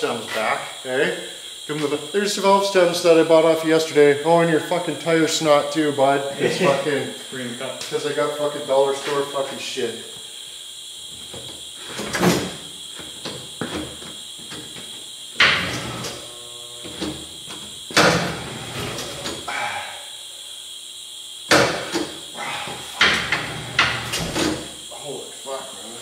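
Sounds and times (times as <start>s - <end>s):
faint high whine: 0.0s - 26.0s
tire machine clunks: 11.9s - 16.2s, 16.9s - 19.5s, 21.5s - 22.2s, 22.8s - 24.7s.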